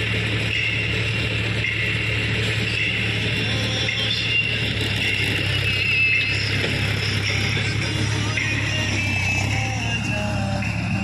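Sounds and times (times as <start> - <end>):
tractor diesel engine running: 0.0 - 11.0.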